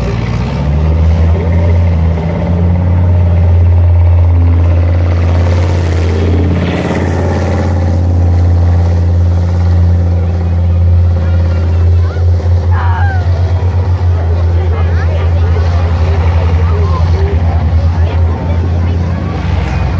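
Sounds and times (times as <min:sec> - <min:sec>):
tracked vehicle diesel engine drone: 0:00.0 - 0:19.9.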